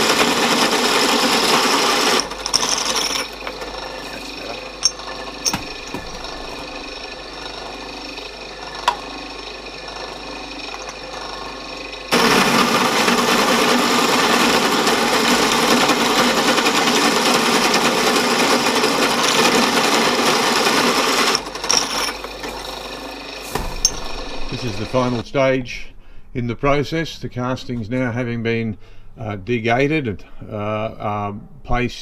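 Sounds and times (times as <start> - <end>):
hole saw cutting metal: 0.0 - 25.2
machine spindle running: 0.0 - 25.2.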